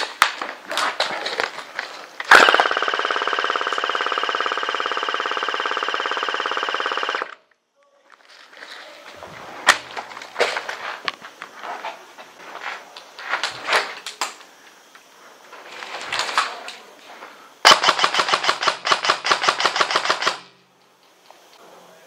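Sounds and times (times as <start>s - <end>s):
airsoft gun automatic fire: 2.3s - 7.4s, 17.6s - 20.6s.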